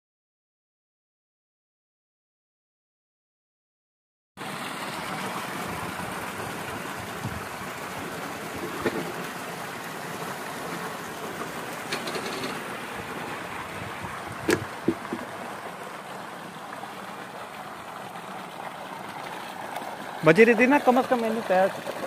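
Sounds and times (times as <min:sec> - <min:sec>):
water gushing into a concrete tank: 0:04.4 - 0:22.0
short knocks: 0:14.4 - 0:15.3.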